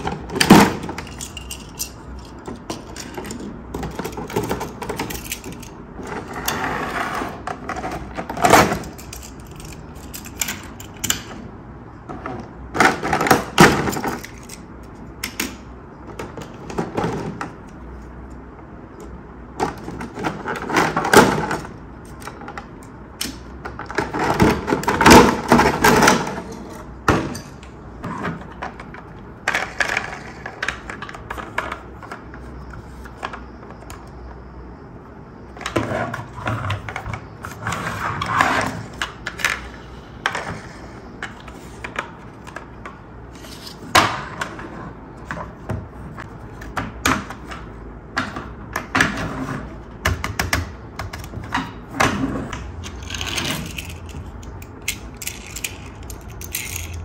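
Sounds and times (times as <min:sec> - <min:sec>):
plastic toy pieces clattering: 0:00.0 - 0:06.3, 0:07.7 - 0:11.3, 0:52.8 - 0:57.0.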